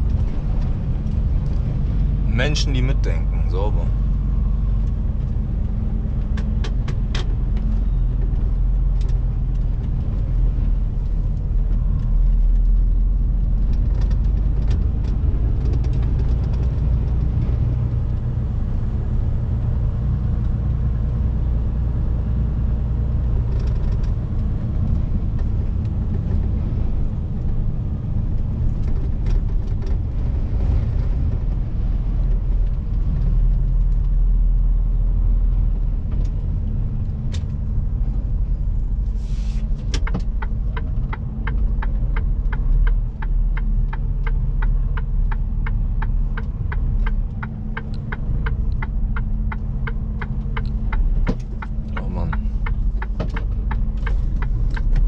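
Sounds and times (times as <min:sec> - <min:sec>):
truck diesel engine droning: 0:00.0 - 0:55.0.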